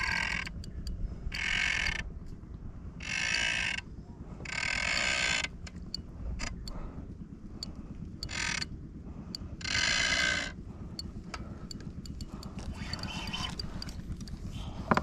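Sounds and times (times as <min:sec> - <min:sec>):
fishing reel buzzing: 0:00.0 - 0:02.1, 0:03.0 - 0:03.8, 0:04.5 - 0:05.8, 0:07.6 - 0:08.7, 0:09.6 - 0:10.6, 0:11.7 - 0:14.4.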